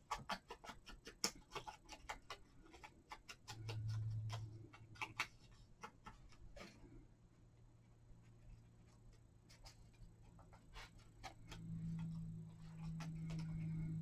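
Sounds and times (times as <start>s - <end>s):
foam tool tapping on paper: 0.0s - 6.7s
low hum: 6.9s - 14.0s.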